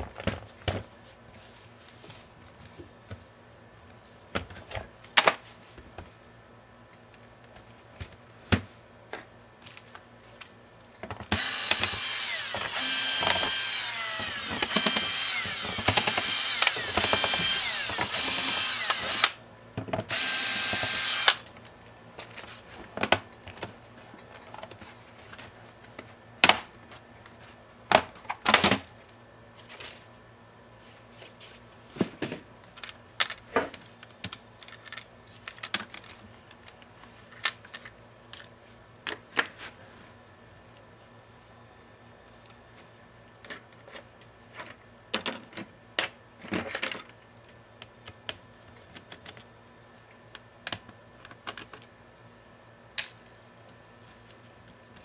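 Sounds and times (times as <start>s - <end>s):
electric screwdriver whining: 11.3s - 19.4s, 20.1s - 21.4s.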